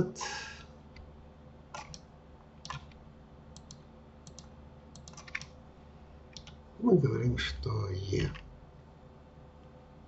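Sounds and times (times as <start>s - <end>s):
mouse and keyboard clicks: 1.8s - 3.0s, 3.6s - 5.6s, 6.3s - 6.6s.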